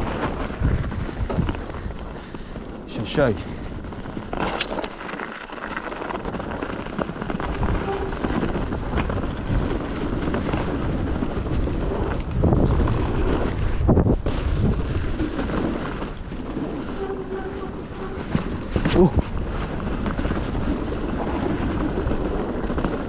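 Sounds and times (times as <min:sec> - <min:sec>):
wind on microphone: 0:00.0 - 0:02.4, 0:07.1 - 0:23.0
bike tyres rolling on dirt: 0:00.0 - 0:23.0.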